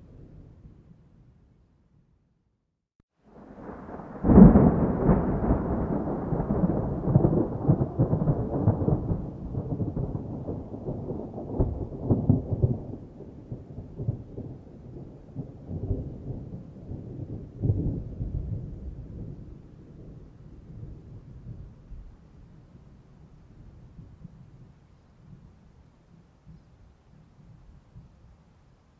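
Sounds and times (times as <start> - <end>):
thunder crack and rumble: 3.3 - 22.1.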